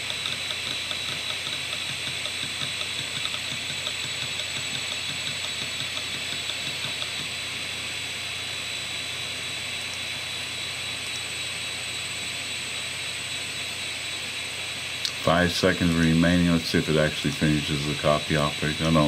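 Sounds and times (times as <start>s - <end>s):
hard drive head ticking: 0.0s - 7.9s
hard drive platters whining: 0.0s - 19.0s.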